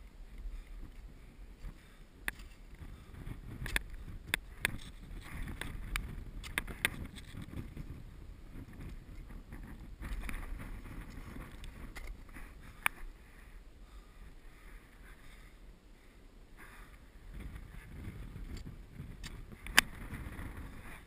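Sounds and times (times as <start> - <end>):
wind rumble on microphone: 0.0 - 21.0
ice axe and crampons scraping: 1.0 - 8.0, 8.6 - 13.1.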